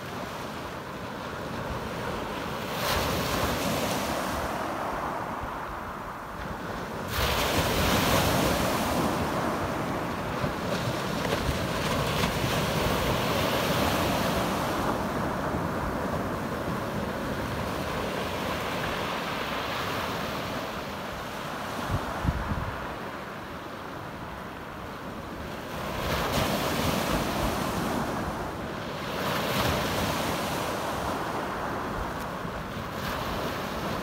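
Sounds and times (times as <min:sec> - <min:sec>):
wind on microphone: 0:19.8 - 0:23.1.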